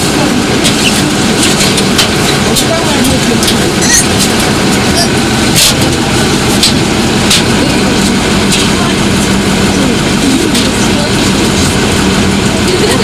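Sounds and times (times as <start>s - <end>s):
heavy engine droning: 0.0s - 13.0s.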